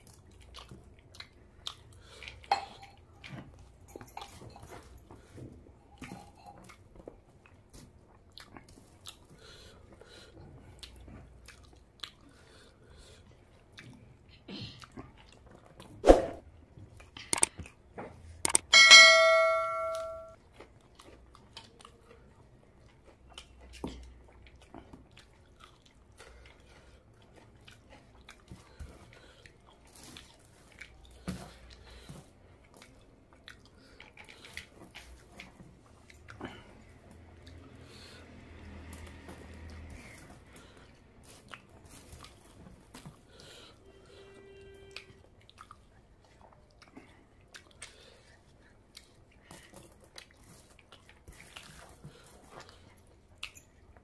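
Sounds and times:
soft chewing and mouth clicks: 0:00.0 - 0:16.0, 0:16.6 - 0:18.6, 0:20.3 - 0:44.2, 0:44.9 - 0:54.0
bright ringing chime: 0:18.7 - 0:20.4.

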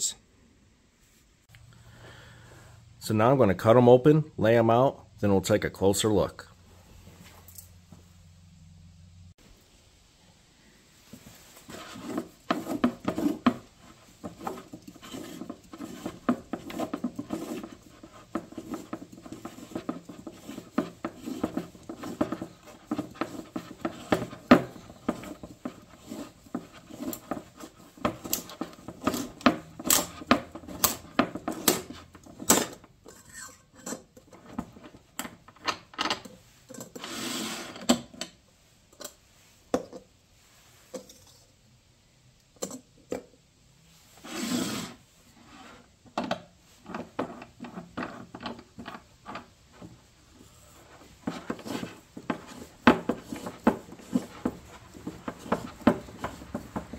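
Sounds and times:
metal scraping and rubbing: 0:11.2 - 0:35.1, 0:36.4 - 0:37.9, 0:44.1 - 0:46.0, 0:46.7 - 0:56.9.

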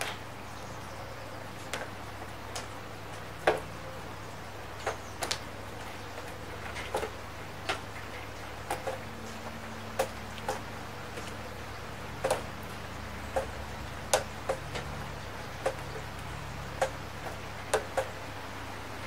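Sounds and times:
large raindrops ticking: 0:00.0 - 0:19.0
steady hiss of rain: 0:00.0 - 0:19.0.

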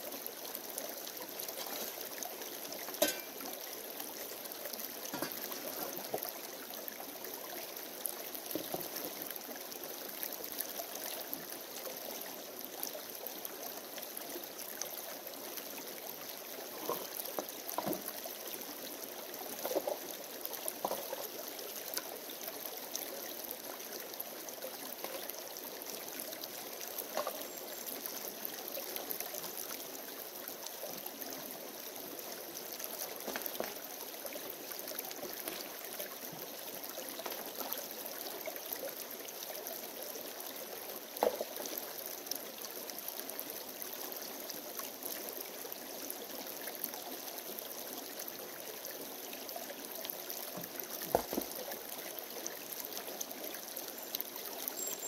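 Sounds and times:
creek running over stones: 0:00.0 - 0:55.0
splashes and knocks: 0:03.0 - 0:03.4, 0:51.1 - 0:51.6.

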